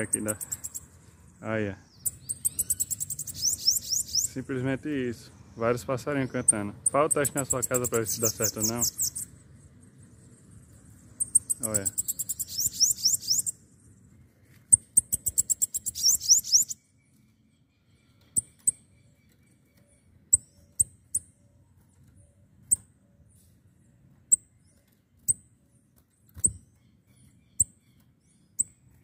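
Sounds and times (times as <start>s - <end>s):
sharp high bird chips: 0.0s - 1.0s, 1.9s - 4.6s, 6.3s - 9.4s, 11.0s - 13.6s, 14.6s - 16.8s
bird singing rising notes: 0.0s - 20.9s.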